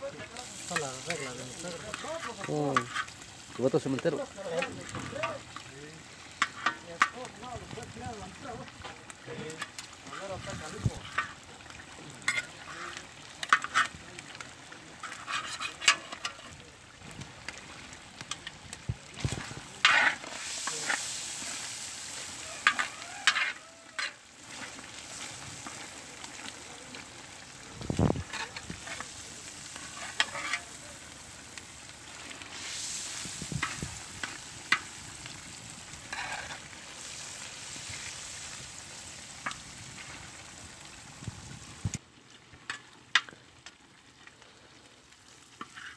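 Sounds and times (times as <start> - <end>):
meat sizzling in a pan: 0.0 - 45.9
utensils scraping and knocking pan: 0.2 - 3.2, 12.2 - 14.0, 15.0 - 16.5, 19.2 - 21.7, 22.6 - 24.8, 28.2 - 29.2, 29.8 - 30.8, 36.1 - 36.6.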